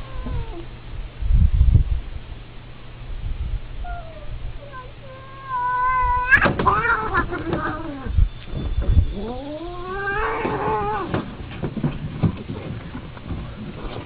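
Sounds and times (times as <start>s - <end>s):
cats yowling and screeching: 0.0s - 0.7s, 3.8s - 8.2s, 9.1s - 11.2s.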